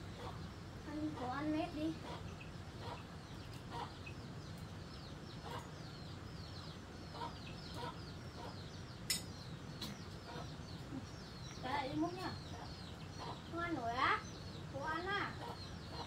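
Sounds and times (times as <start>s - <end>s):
chickens clucking: 0.0s - 16.0s
chicks peeping: 0.0s - 16.0s.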